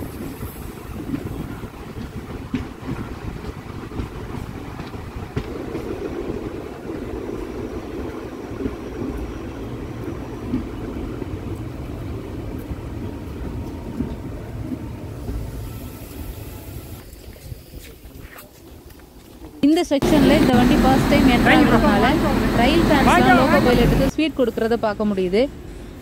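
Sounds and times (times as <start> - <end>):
sharp knocks of train: 0.0 - 7.4
train rumbling on track: 0.0 - 26.0.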